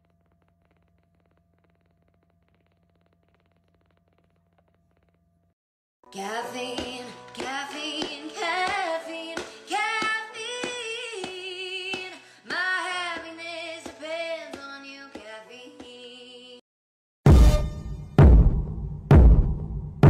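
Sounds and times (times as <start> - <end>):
woman singing slow melody: 6.1 - 16.6.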